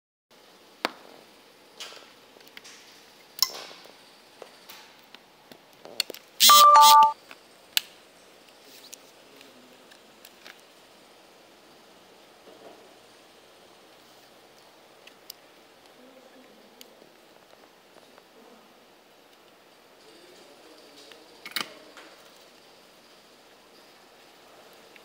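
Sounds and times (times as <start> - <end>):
high tone dropping in pitch: 6.4 - 7.2.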